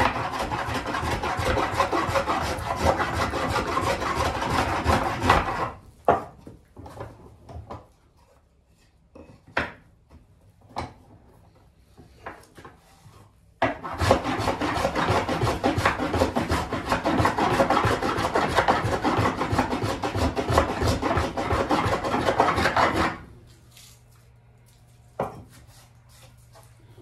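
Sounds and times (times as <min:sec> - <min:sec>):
wood being rasped by hand: 0:00.0 - 0:05.8, 0:13.7 - 0:23.2.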